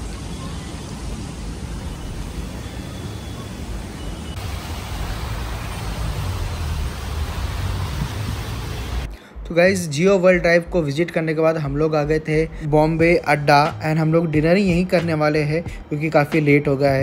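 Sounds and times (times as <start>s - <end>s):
traffic noise: 0.0s - 9.1s
rain on wet street: 3.6s - 9.1s.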